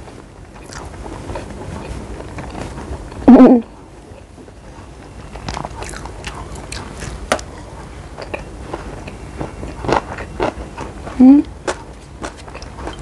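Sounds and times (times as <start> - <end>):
person chewing: 0.6 - 3.2, 5.3 - 13.0.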